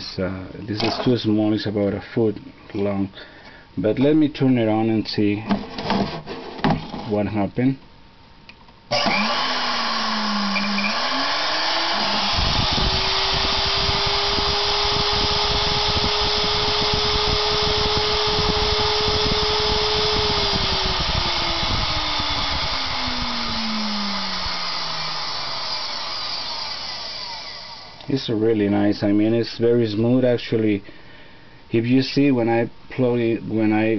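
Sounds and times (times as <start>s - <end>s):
electric motor whining: 8.9s - 28.1s.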